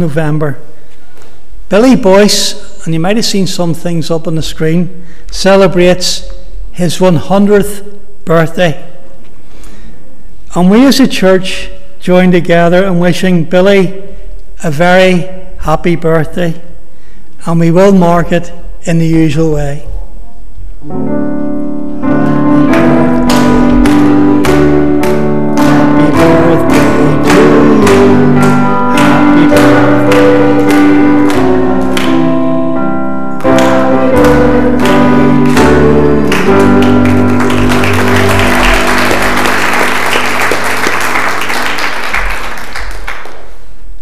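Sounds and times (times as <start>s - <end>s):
piano chords: 20.7s - 43.6s
applause: 36.2s - 43.6s.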